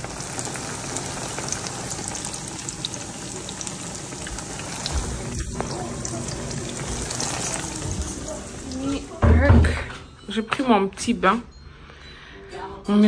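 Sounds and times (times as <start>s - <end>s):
plantains frying in hot oil: 0.0s - 9.3s.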